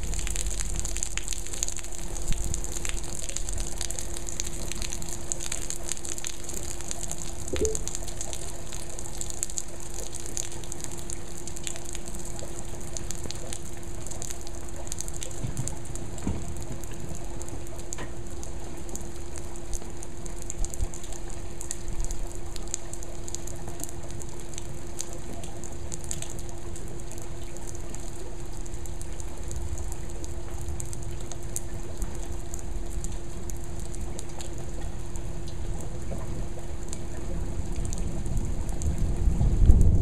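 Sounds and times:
raindrops ticking: 0.0 - 36.0
low hum: 7.4 - 8.1.

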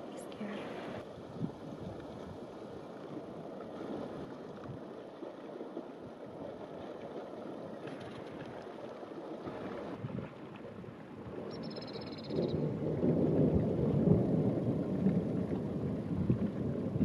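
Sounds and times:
rushing wind: 0.0 - 2.7, 9.4 - 17.0.

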